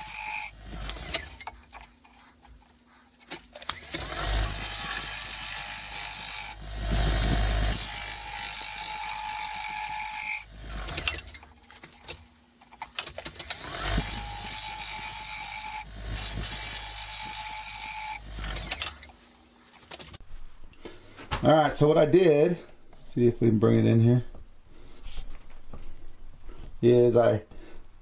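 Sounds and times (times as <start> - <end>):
gouge scraping spinning wooden bowl: 0.0 - 11.6.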